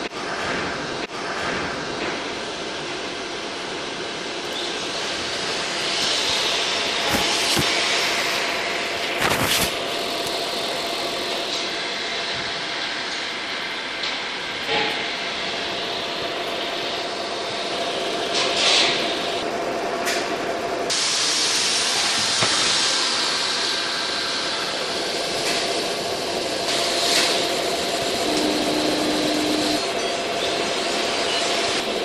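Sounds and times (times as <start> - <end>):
laser engraver hissing: 4.5 - 11.4, 22.0 - 32.0.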